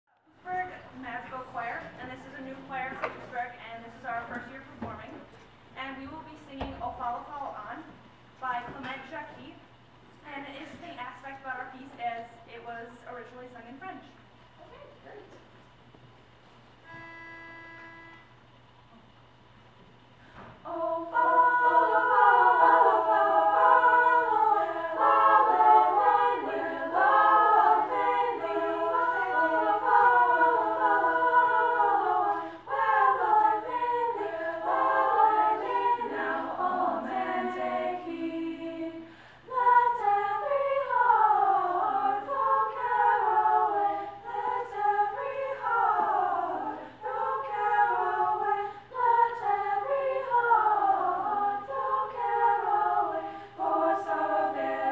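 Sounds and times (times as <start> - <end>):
women's vocal ensemble singing: 20.4 - 54.9.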